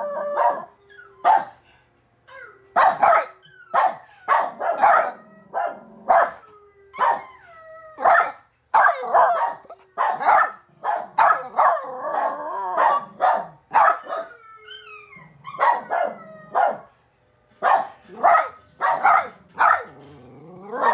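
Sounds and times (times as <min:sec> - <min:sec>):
puppy whining howls: 0:00.0 - 0:01.5, 0:02.3 - 0:08.3, 0:11.5 - 0:13.0, 0:14.0 - 0:16.8
puppy barking: 0:00.3 - 0:01.6, 0:02.8 - 0:06.4, 0:07.0 - 0:07.3, 0:08.0 - 0:14.4, 0:15.5 - 0:16.9, 0:17.6 - 0:20.0.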